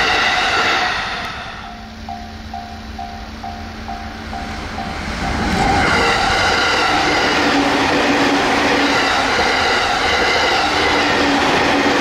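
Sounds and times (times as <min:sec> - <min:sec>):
passing train rumble: 0:00.0 - 0:12.0
level crossing warning bell: 0:01.6 - 0:07.6.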